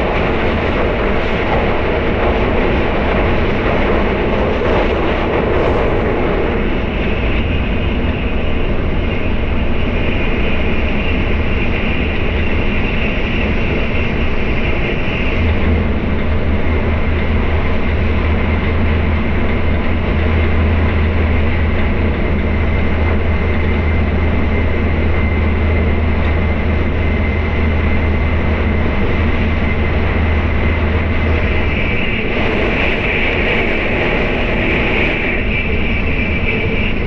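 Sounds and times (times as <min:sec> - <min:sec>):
train cabin low rumble: 0:00.0 - 0:37.0
train hiss: 0:20.6 - 0:37.0.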